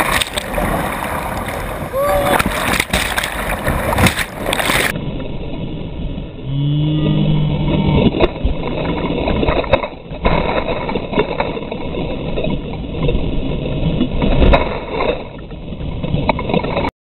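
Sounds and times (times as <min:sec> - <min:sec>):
sharp water splashes: 0:00.0 - 0:05.0, 0:08.0 - 0:16.9
whitewater rushing and splashing: 0:00.0 - 0:05.0
water washing over microphone: 0:00.0 - 0:06.2, 0:07.5 - 0:16.9
person crying out: 0:01.9 - 0:02.4.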